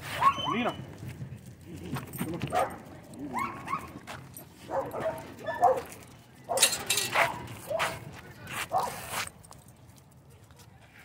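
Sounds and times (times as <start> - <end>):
dogs barking and yipping: 0.0 - 1.0, 2.1 - 8.1, 8.7 - 9.2.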